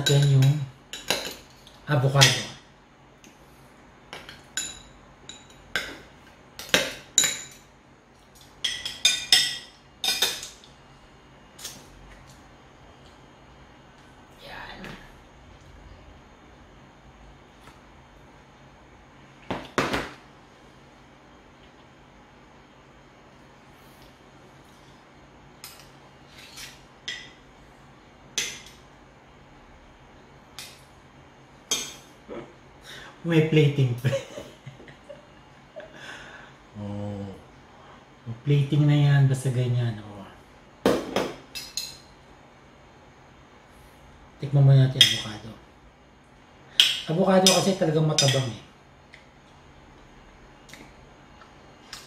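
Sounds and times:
metal spoons clinking on dishes: 0:00.0 - 0:02.5, 0:04.2 - 0:06.0, 0:06.6 - 0:07.7, 0:08.4 - 0:10.7, 0:45.0 - 0:45.4, 0:46.8 - 0:48.6
spoons clinking on ceramic plate: 0:08.4 - 0:10.7, 0:46.8 - 0:48.6.

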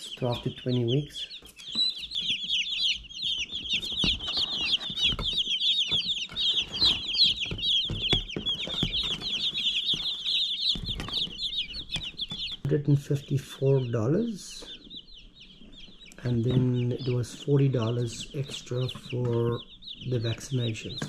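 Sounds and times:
chicks peeping: 0:00.0 - 0:21.0.

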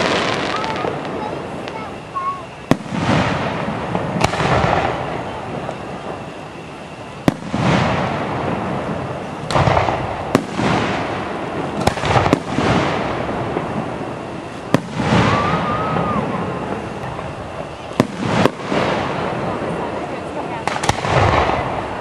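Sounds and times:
fireworks cracks and booms: 0:00.0 - 0:22.0.

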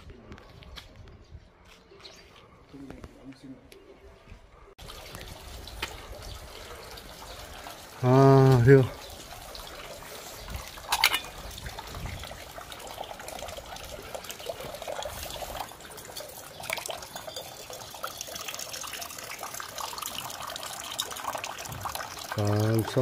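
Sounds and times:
water trickling into stone basin: 0:04.8 - 0:23.0.

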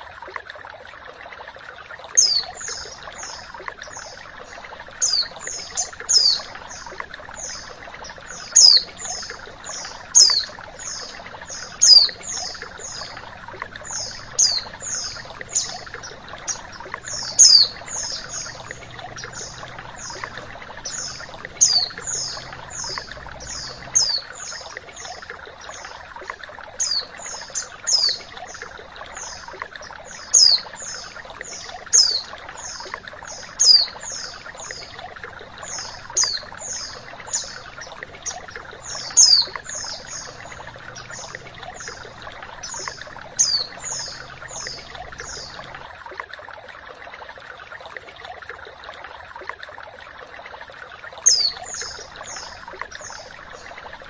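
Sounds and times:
flowing water rushing: 0:00.0 - 0:54.0
bird high-pitched chirps: 0:05.0 - 0:07.7, 0:08.3 - 0:13.1, 0:16.5 - 0:18.6, 0:38.3 - 0:42.0.

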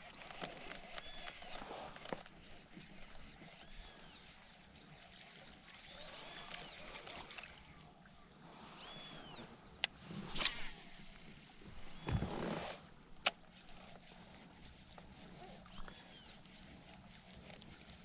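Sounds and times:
water trickling and lapping: 0:00.0 - 0:18.0
whistled calls: 0:03.6 - 0:07.4, 0:08.6 - 0:12.3.

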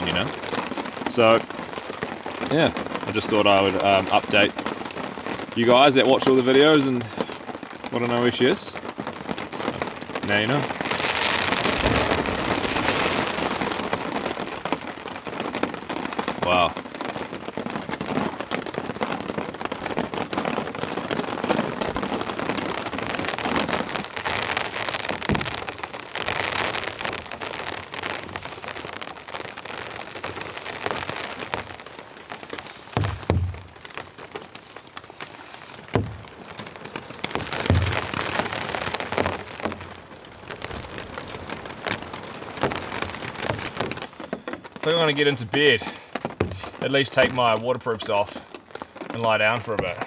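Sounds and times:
rain pattering on a tarp: 0:00.0 - 0:50.0
water dripping off tarp: 0:00.0 - 0:50.0
dull thumps: 0:11.5 - 0:14.6, 0:24.8 - 0:27.3, 0:32.9 - 0:34.1, 0:35.8 - 0:39.9, 0:42.6 - 0:47.4.

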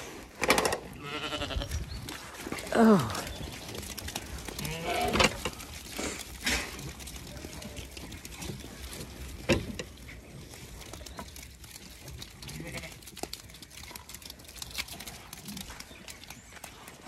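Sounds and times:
shuffling hooves: 0:00.0 - 0:17.0
sheep bleating: 0:00.9 - 0:01.8, 0:04.6 - 0:05.3, 0:12.5 - 0:13.1.

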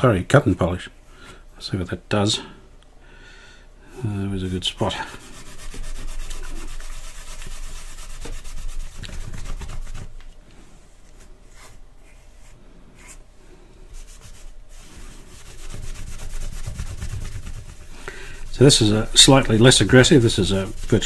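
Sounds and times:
cloth scrubbing plastic panel: 0:14.2 - 0:21.0.

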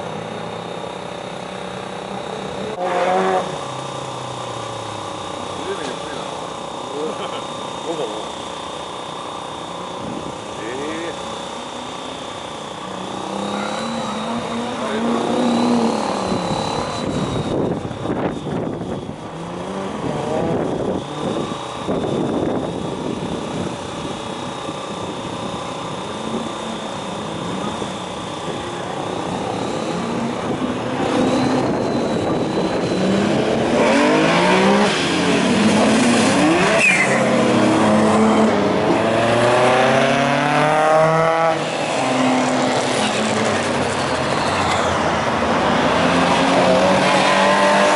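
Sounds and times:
cars driving past: 0:28.8 - 0:47.9.

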